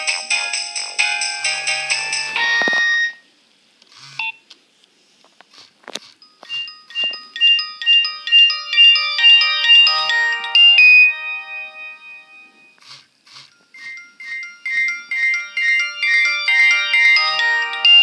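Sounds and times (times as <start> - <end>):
mobile phone ringtone melody: 0.0 - 3.2, 6.2 - 12.8, 13.5 - 18.0.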